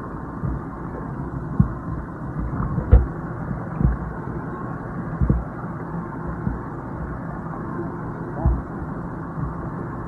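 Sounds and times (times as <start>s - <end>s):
short low thumps: 2.4s - 3.1s, 5.2s - 5.5s.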